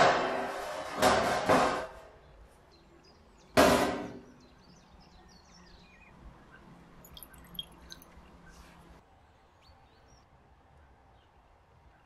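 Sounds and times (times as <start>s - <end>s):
faint high chirps: 6.5s - 8.8s.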